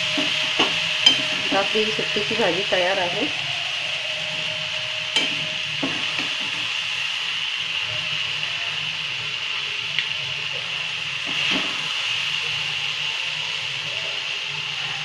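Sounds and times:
sizzling hiss from pan: 0.0s - 15.0s
metal spoon scraping a pan: 0.1s - 1.6s.

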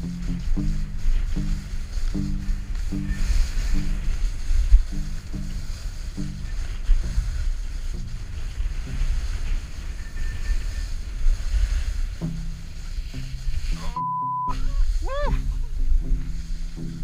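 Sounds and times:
heavy rumble: 0.0s - 14.0s, 14.6s - 17.0s
snowboard scraping over snow: 0.0s - 14.0s, 14.6s - 17.0s
wind buffeting microphone: 0.0s - 17.0s
censor bleep: 13.8s - 14.6s.

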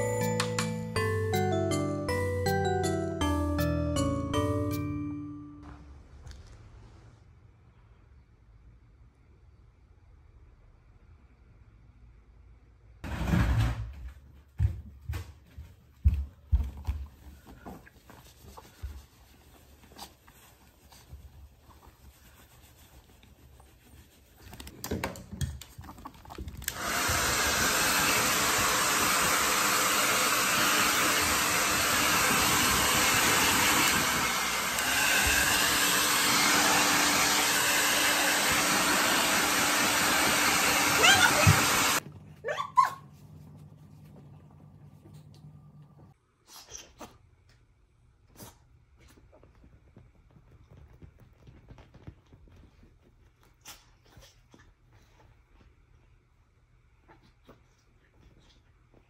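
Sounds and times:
hair dryer blowing: 26.7s - 42.0s.

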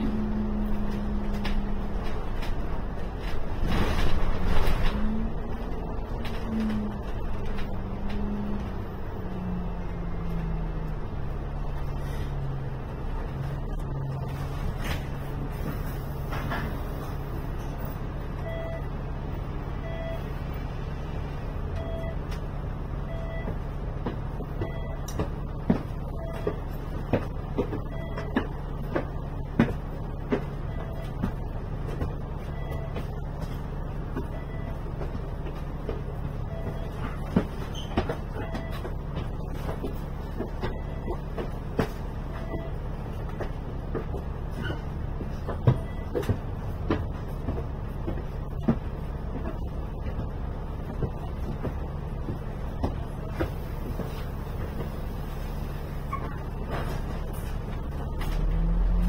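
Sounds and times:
bus engine idling: 0.0s - 59.0s
short beeps: 18.4s - 18.9s, 19.8s - 20.3s, 21.8s - 22.2s, 23.1s - 23.5s, 24.6s - 25.1s, 27.9s - 28.4s, 32.5s - 33.0s, 36.5s - 37.0s.

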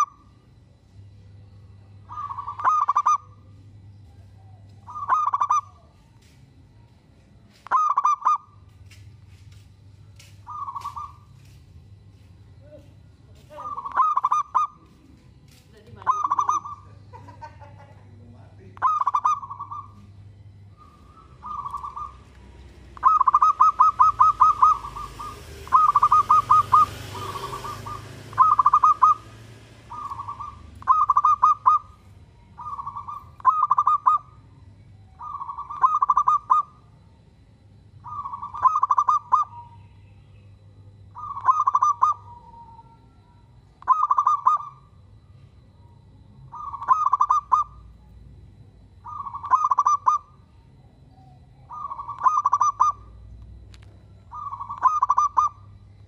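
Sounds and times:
dove cooing: 0.0s - 0.4s, 2.0s - 6.1s, 7.6s - 8.6s, 10.4s - 11.5s, 13.4s - 37.0s, 38.0s - 40.0s, 41.0s - 45.1s, 45.8s - 48.2s, 48.9s - 53.3s, 54.3s - 55.9s.

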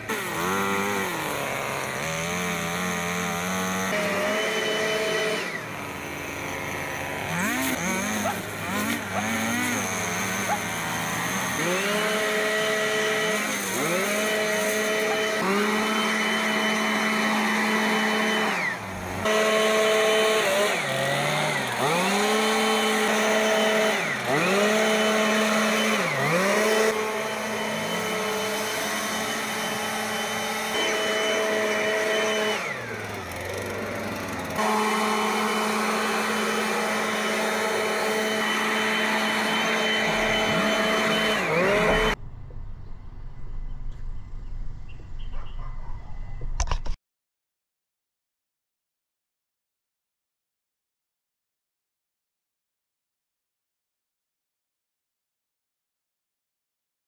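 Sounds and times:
leaf blower engine revving: 0.0s - 42.2s.

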